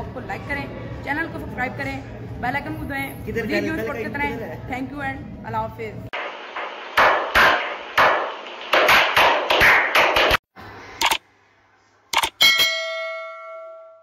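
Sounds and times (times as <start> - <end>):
group slow clapping: 8.0 - 10.4
sharp clicks: 11.0 - 11.2, 12.1 - 12.4.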